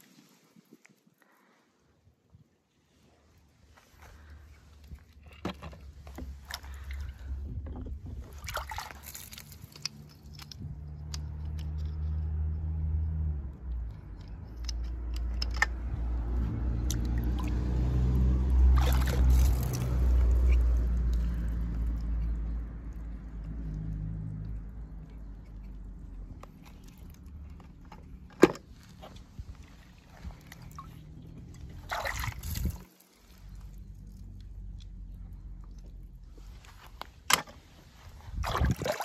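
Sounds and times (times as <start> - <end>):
water splashing and dripping: 6.0 - 7.4, 8.1 - 11.9, 15.0 - 22.4, 29.5 - 34.9, 38.2 - 39.0.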